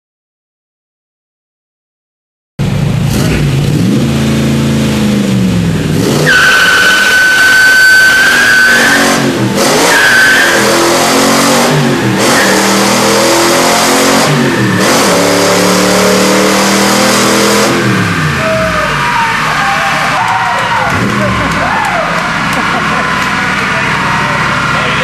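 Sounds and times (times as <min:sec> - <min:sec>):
car engine revving on dyno: 0:02.6 - 0:25.0
wheel spin squeal: 0:06.2 - 0:09.2, 0:09.9 - 0:10.8.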